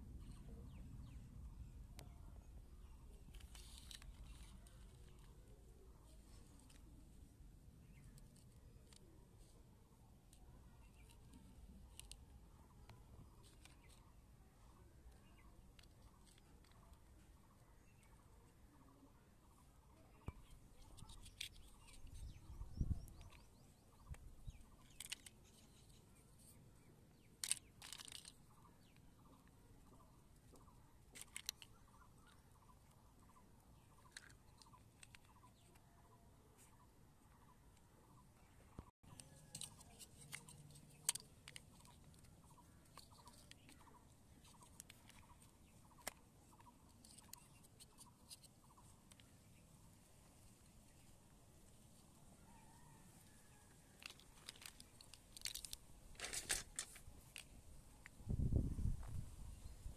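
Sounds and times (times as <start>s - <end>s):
plastic toy bricks clicking: 11.9s - 14.0s, 15.6s - 17.0s, 20.8s - 26.6s, 27.2s - 29.6s, 31.1s - 32.4s, 34.0s - 35.8s, 39.1s - 49.3s, 54.0s - 57.5s.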